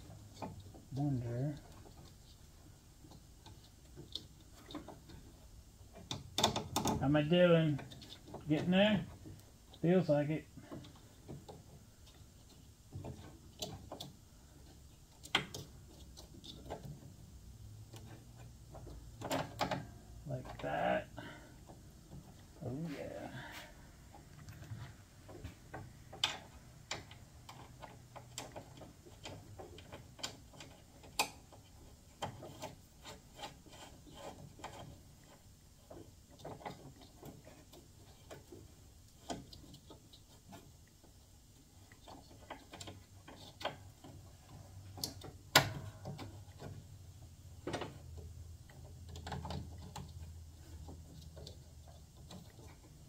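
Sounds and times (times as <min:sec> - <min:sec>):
small metallic clicks and taps: 0:03.0 - 0:07.0, 0:24.2 - 0:53.0.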